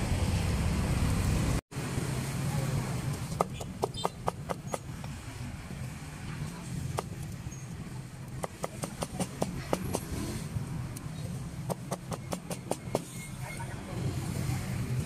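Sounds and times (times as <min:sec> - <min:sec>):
street traffic hum: 0:00.0 - 0:15.0
cleaver chopping on wooden block: 0:08.4 - 0:10.1.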